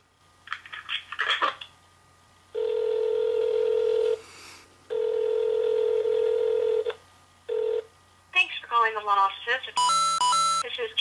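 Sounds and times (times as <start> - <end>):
telephone ringback tone: 2.6 - 4.2, 4.9 - 6.9, 7.5 - 7.8, 9.8 - 10.6.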